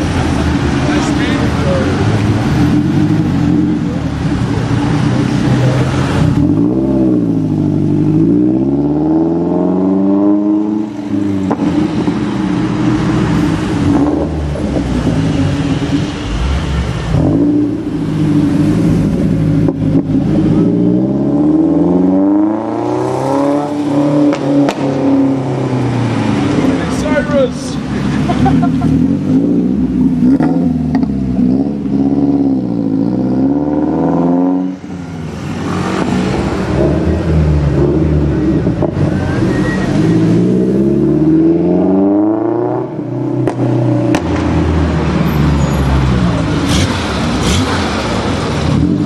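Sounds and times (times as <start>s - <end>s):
sports car engine accelerating: 0.0s - 49.0s.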